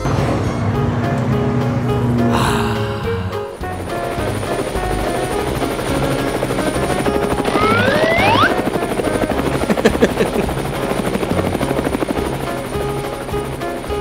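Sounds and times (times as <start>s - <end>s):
background music: 0.0s - 14.0s
cartoon helicopter rotor chopping: 2.2s - 14.0s
rising whistle-like glide: 7.4s - 8.6s.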